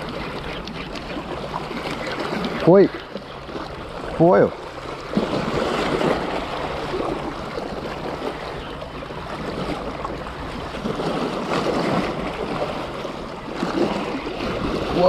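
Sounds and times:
sea waves splashing against rocks: 0:00.0 - 0:08.5, 0:09.2 - 0:15.0
wind rumbling on microphone: 0:00.0 - 0:15.0.

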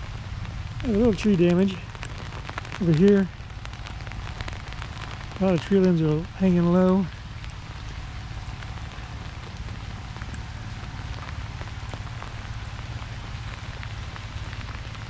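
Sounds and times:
freezing rain pattering: 0:00.0 - 0:15.0
steady low hum: 0:00.0 - 0:15.0.

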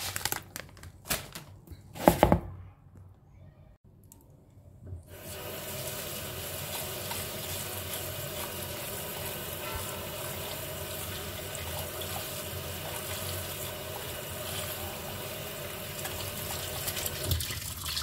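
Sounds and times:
tap water running into colander: 0:05.1 - 0:18.0.

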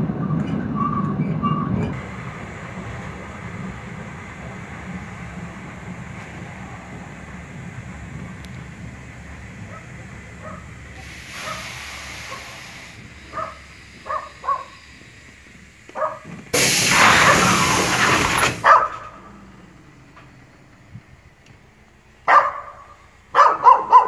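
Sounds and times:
train rumble: 0:00.0 - 0:24.0
train air hiss: 0:01.9 - 0:19.4
small dog yapping: 0:23.4 - 0:24.0.

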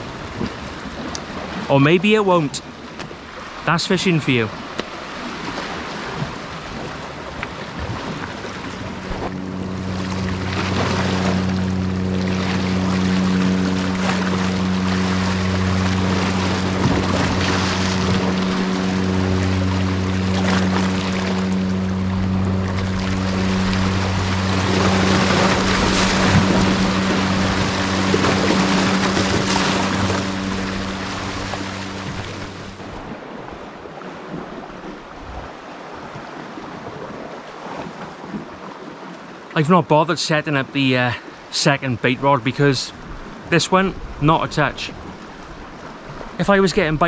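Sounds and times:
small waves washing against rocks: 0:00.0 - 0:09.4
steady low hum: 0:00.0 - 0:33.4
sea waves washing against rocks: 0:00.0 - 0:47.0.

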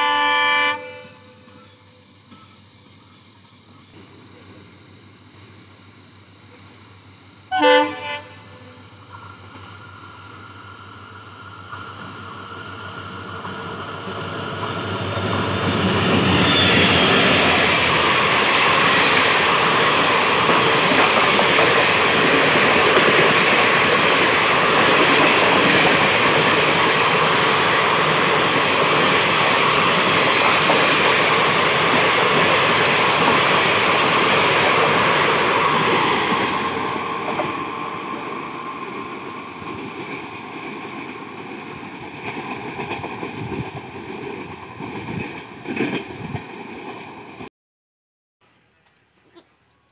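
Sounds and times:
train passing at high speed: 0:00.0 - 0:02.4, 0:03.2 - 0:47.5.

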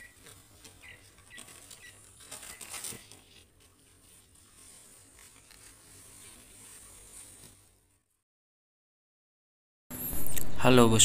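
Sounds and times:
newspaper rustling: 0:00.0 - 0:08.2.

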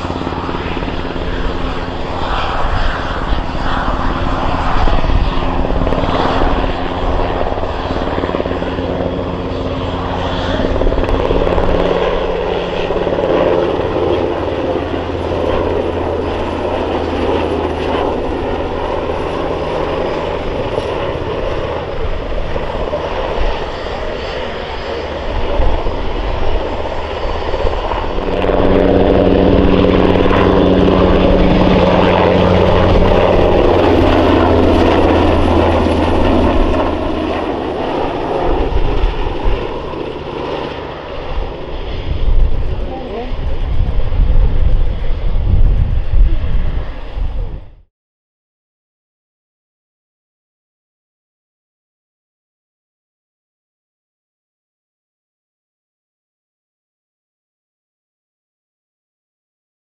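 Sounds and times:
helicopter flying close by: 0:00.0 - 0:47.9.

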